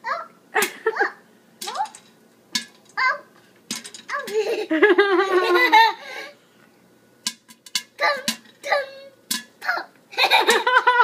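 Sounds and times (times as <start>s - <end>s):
young child giggling: 4.2s - 6.3s, 10.2s - 11.0s.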